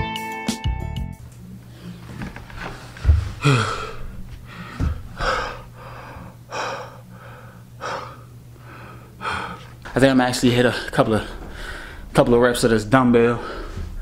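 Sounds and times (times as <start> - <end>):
man breathing hard: 2.6 - 9.8, 10.7 - 12.1, 13.3 - 14.0
low thump: 10.9 - 14.0.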